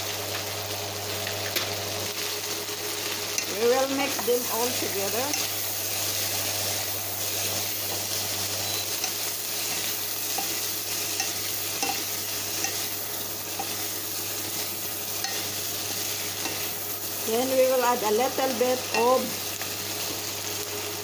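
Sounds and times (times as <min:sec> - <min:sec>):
vegetables sizzling in a pan: 0:00.0 - 0:21.0
spatula tapping pan: 0:10.3 - 0:13.8.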